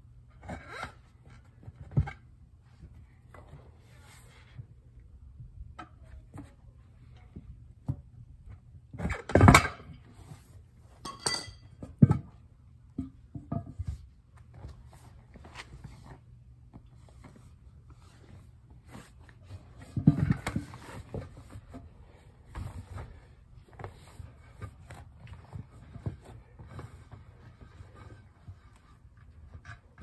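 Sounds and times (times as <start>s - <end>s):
objects knocking and clinking: 11.0s - 11.9s.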